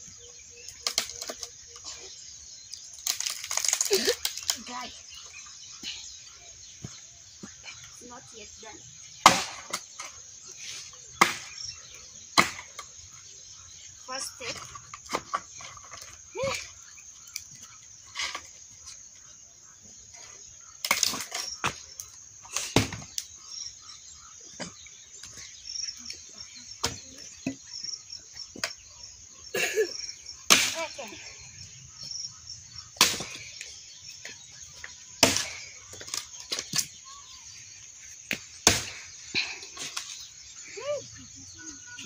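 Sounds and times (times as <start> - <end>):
axe chopping wood: 9.2 - 9.9, 11.2 - 11.6, 12.4 - 12.8, 22.6 - 23.1, 30.5 - 30.8, 33.0 - 33.6, 35.2 - 36.9, 38.3 - 39.1.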